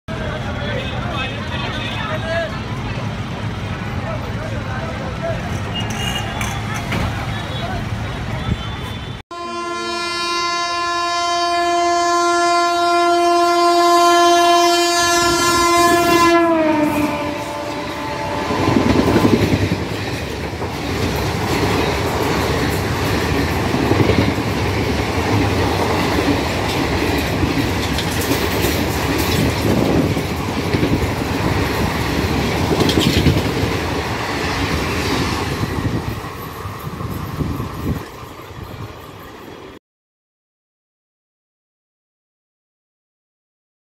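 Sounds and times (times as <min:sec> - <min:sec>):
locomotive horn: 0:05.6 - 0:06.7, 0:07.4 - 0:19.4
train wheels clattering over rail joints: 0:18.7 - 0:39.5.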